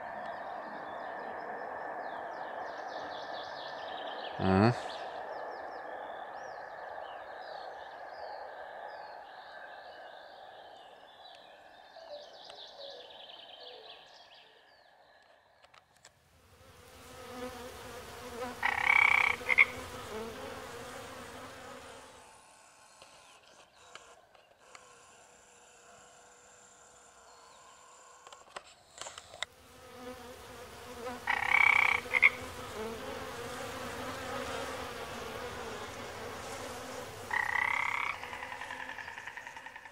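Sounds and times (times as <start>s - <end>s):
faint bird chirps: 0.0s - 15.6s
frogs croaking: 0.0s - 15.7s, 17.2s - 20.8s, 29.9s - 39.9s.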